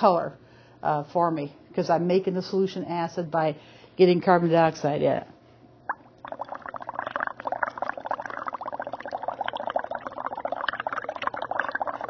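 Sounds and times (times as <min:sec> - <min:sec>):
liquid bubbling: 0:05.9 - 0:12.0.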